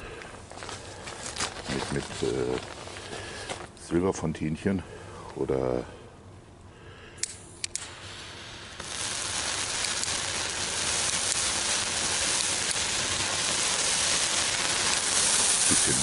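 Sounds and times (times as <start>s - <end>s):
spark fountain hissing: 1.2s - 2.6s, 7.2s - 16.0s.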